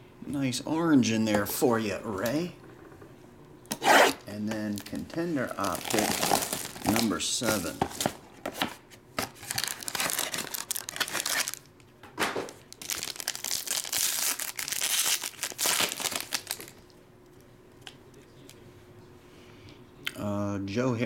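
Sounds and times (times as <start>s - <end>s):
plastic wrapper crinkling and tearing: 4.6s - 8.2s, 9.2s - 11.8s, 12.5s - 16.9s.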